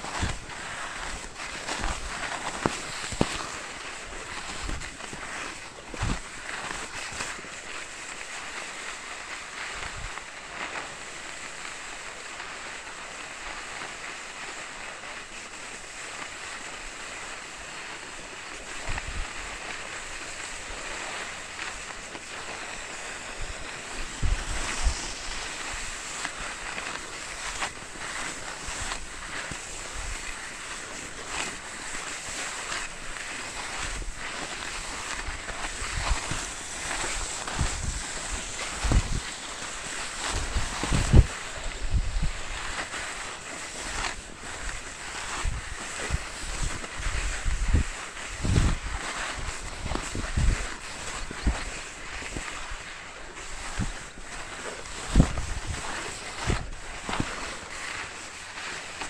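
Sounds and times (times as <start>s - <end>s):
skis hissing over snow: 0.0s - 59.0s
wind on microphone: 18.8s - 19.6s, 22.5s - 30.8s, 32.7s - 43.2s, 43.8s - 57.8s.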